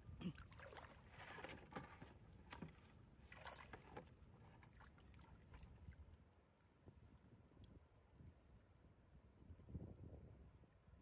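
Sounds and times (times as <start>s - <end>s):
wading in muddy water: 0.0s - 6.4s.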